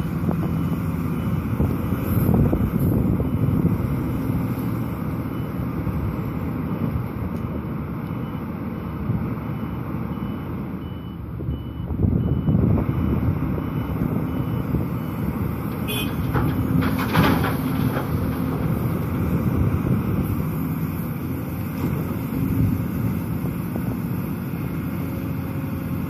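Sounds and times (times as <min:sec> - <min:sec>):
excavator engine running: 0:00.0 - 0:26.0
reversing alarm beeping: 0:00.4 - 0:01.6, 0:05.2 - 0:06.0, 0:08.0 - 0:16.1.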